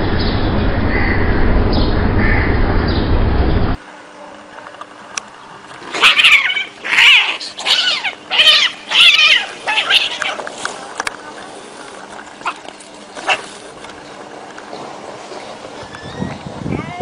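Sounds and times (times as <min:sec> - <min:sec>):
loud rumbling noise: 0:00.0 - 0:03.8
cats yowling in a fight: 0:05.9 - 0:10.4.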